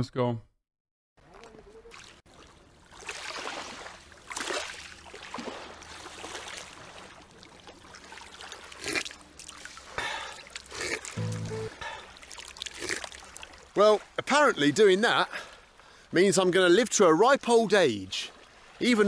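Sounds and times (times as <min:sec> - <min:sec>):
waves lapping on pebble shore: 0:02.4 - 0:07.2
short low buzzing tone: 0:11.2 - 0:11.8.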